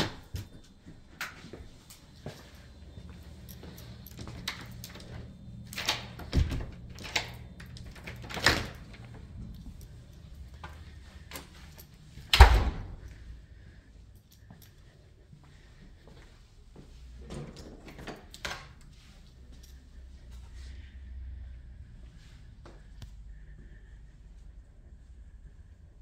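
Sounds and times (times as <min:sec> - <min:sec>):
loud door thump: 0:12.3 - 0:13.0.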